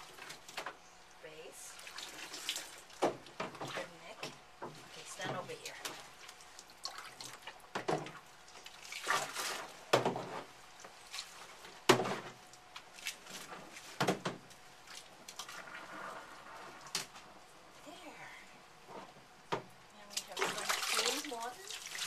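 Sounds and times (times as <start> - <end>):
water splashing in a sink: 1.7 - 4.2, 4.8 - 14.2, 14.8 - 17.1, 20.1 - 22.0.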